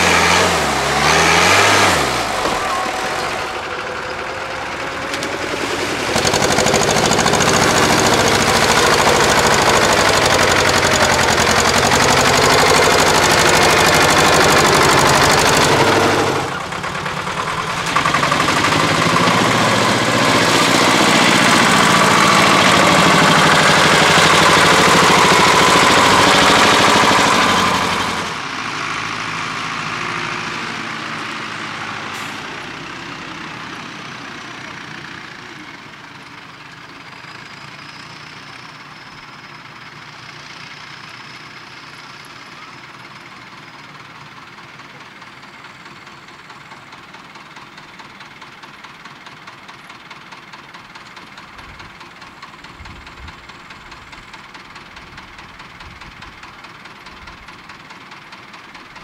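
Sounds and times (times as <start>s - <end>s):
tractor engine running hard: 0.0s - 59.0s.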